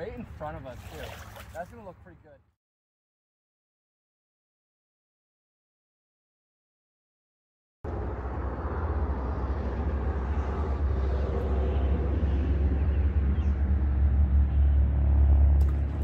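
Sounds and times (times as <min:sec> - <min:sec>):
distant road traffic: 0:07.9 - 0:16.0.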